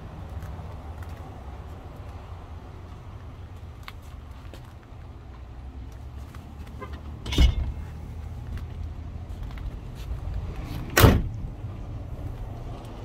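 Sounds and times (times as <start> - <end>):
car door clunk: 10.9 - 11.4
car door slamming shut: 10.9 - 11.4.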